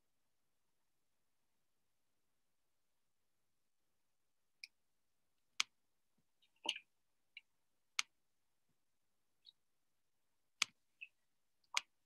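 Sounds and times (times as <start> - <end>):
faint mouse clicks: 5.6 - 5.8, 6.5 - 8.2, 10.6 - 12.0.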